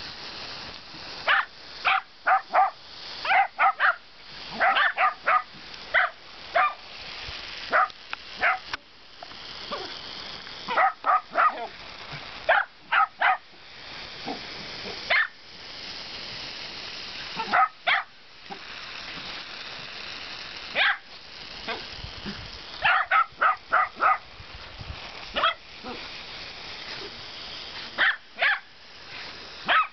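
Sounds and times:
lawn sprinkler water hiss: 0.0s - 29.9s
dogs barking high-pitched: 1.2s - 6.8s, 7.7s - 8.7s, 10.7s - 11.8s, 12.5s - 13.5s, 15.1s - 15.4s, 17.4s - 18.6s, 20.7s - 21.1s, 22.8s - 24.3s, 25.3s - 26.0s, 28.0s - 28.7s, 29.6s - 29.9s.

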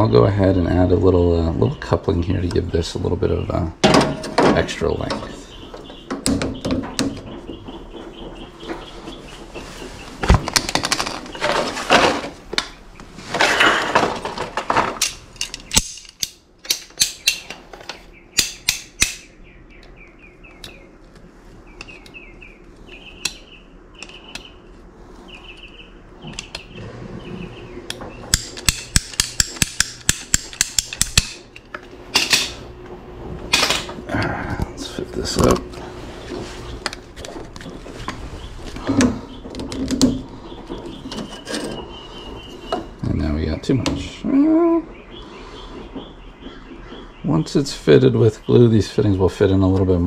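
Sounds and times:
sharp clicks and knocks: 3.8s - 8.9s, 10.2s - 22.2s, 25.6s - 26.8s, 27.8s - 34.0s, 36.3s - 42.9s
scraping pipe: 4.1s - 12.5s, 13.1s - 15.7s, 32.2s - 43.0s.

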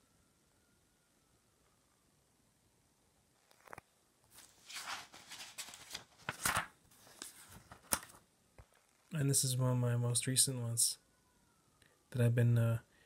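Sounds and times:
sketchbook pages turning: 3.5s - 8.2s.

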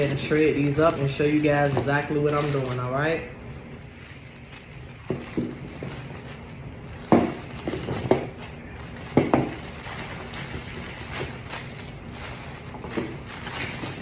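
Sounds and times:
plastic bag crinkling: 0.0s - 14.0s
carrots knocking on countertop: 7.0s - 8.3s, 9.1s - 9.6s.

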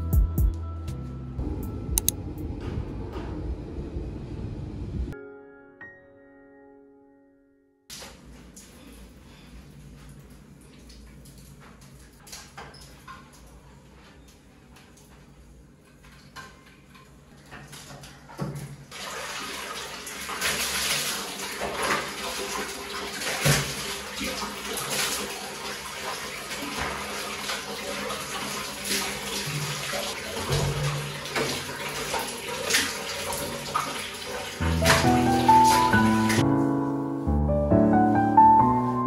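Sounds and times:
soft music: 0.0s - 2.5s, 5.2s - 7.9s, 34.6s - 39.0s
piano music: 0.0s - 2.6s, 5.1s - 7.8s, 34.6s - 39.0s
water running from a tap: 18.9s - 36.4s.

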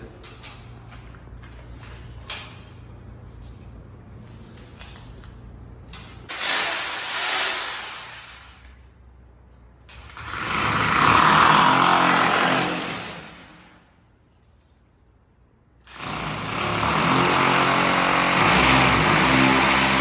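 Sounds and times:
hammer drill boring into wall: 6.3s - 8.6s, 10.1s - 13.6s, 15.9s - 20.0s.

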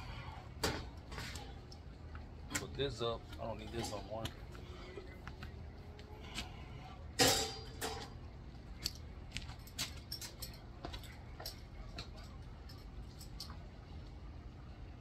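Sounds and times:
low steady hum: 0.0s - 15.0s
metal clanking: 7.1s - 8.2s.

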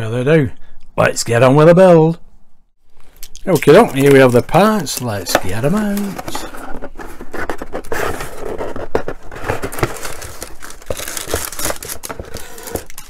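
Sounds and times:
cardboard and paper rustling: 3.0s - 13.0s
plastic parts clicking and knocking: 8.8s - 13.0s.

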